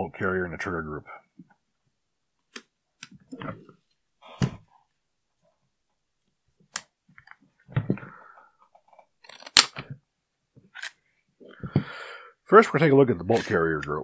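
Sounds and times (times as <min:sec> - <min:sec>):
rifle parts knocking and clicking: 0:08.7 - 0:09.9.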